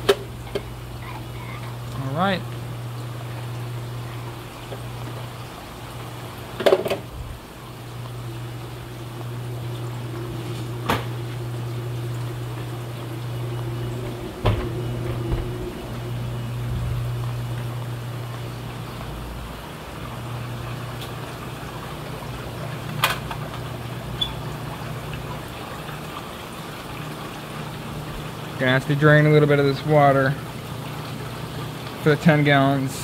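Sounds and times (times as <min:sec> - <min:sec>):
aquarium water running and splashing: 0:00.0 - 0:33.0
low hum: 0:07.1 - 0:21.1.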